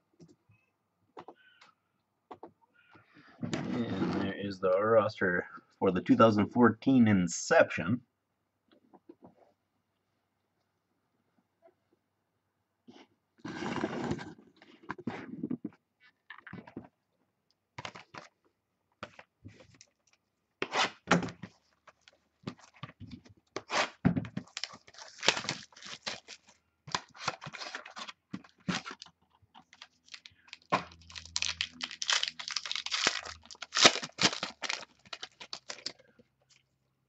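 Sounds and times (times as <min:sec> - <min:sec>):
cardboard rustling and scraping: 0:13.4 - 0:15.5
cardboard tearing: 0:23.6 - 0:29.1, 0:29.8 - 0:35.9.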